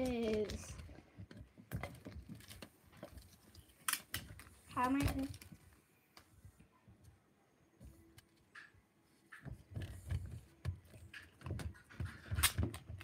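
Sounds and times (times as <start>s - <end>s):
balloon and tape handling noise: 0.0s - 6.5s, 8.1s - 13.0s.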